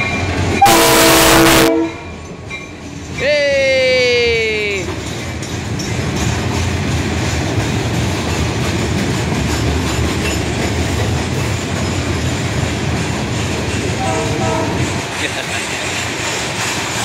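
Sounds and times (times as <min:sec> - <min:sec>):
train wheels rolling on rails: 0:00.0 - 0:01.0, 0:01.8 - 0:17.0.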